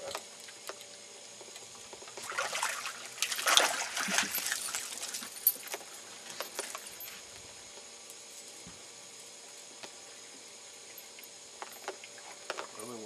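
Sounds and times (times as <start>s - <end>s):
water running off net: 2.2s - 5.2s
water splashing in net: 2.2s - 5.2s.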